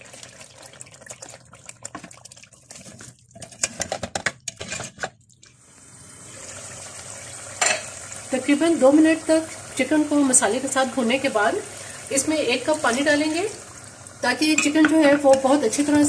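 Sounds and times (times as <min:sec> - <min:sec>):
chicken sloshing into pot: 0:00.0 - 0:04.0
chicken sizzling: 0:05.5 - 0:16.0.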